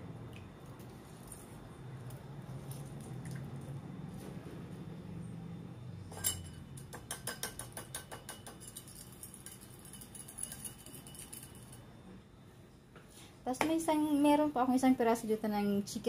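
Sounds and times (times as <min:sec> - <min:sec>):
kitchen items clicking and clinking: 0:06.1 - 0:11.9.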